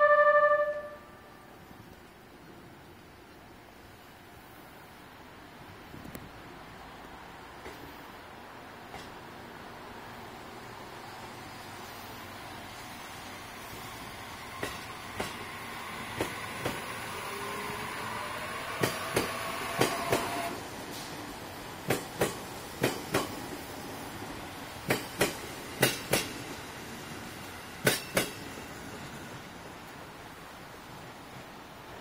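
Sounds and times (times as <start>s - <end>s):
faint whine from train: 0.0s - 32.0s
train wheels clicking over rail joints: 7.6s - 8.0s, 8.8s - 9.3s, 13.8s - 29.2s.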